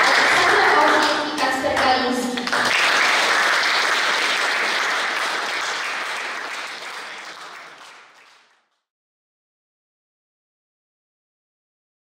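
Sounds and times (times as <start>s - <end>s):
audience applauding: 0.0s - 8.7s.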